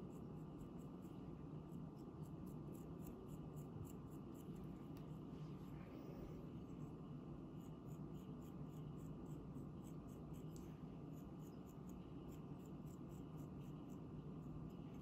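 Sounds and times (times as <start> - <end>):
tool scratching clay: 0.0 - 4.7
low steady hum: 0.0 - 15.0.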